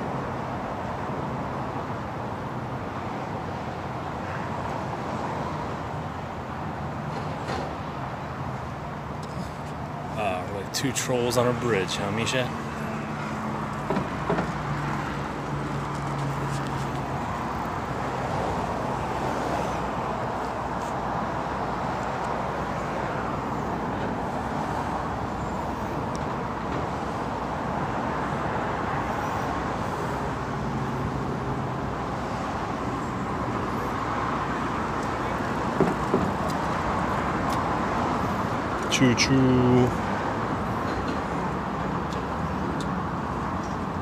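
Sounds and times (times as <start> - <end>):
distant vehicle rumbling hiss: 9.2 - 43.5.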